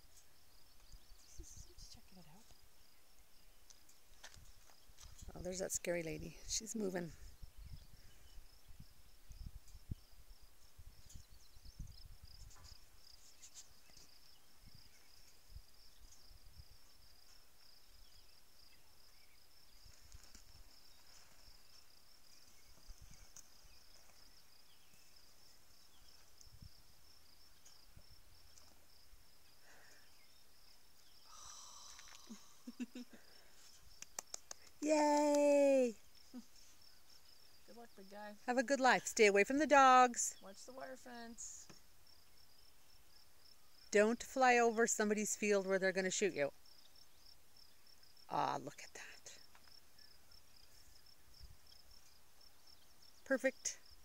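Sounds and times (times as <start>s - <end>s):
high-pitched insect trill: 0.1s - 54.0s
wind rumble on microphone: 7.1s - 12.9s.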